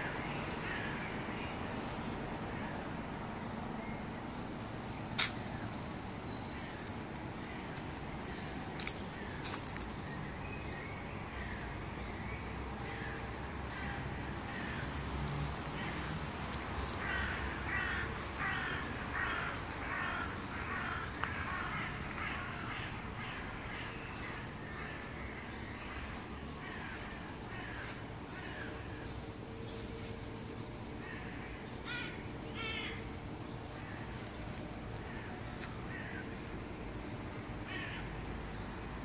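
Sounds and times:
low background noise: 0.0s - 39.0s
crow cawing: 12.9s - 14.9s, 16.9s - 29.0s, 31.0s - 33.1s, 35.9s - 36.3s, 37.6s - 38.1s.

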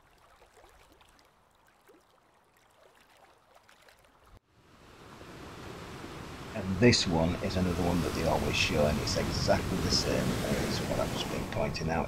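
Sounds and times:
steady faint hiss: 4.8s - 12.0s.

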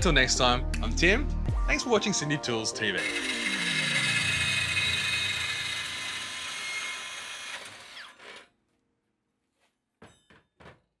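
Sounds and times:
bandsaw cutting steel: 3.0s - 8.5s.

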